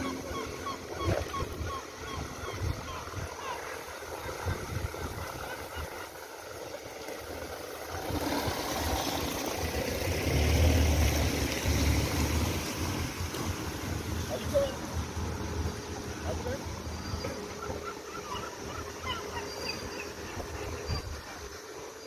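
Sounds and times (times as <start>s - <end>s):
car driving past on cobblestones: 7.9s - 14.1s.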